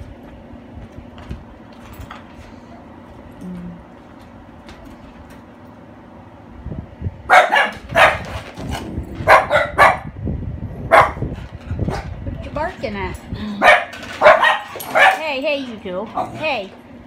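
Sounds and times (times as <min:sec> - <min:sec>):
dog barking: 0:07.3 - 0:08.3, 0:09.2 - 0:10.1, 0:10.9 - 0:11.2, 0:13.6 - 0:15.2.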